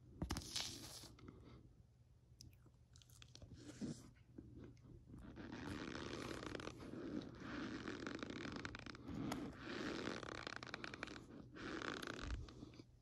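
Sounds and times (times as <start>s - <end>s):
spoon crunching cornstarch powder: 0.3s - 1.2s.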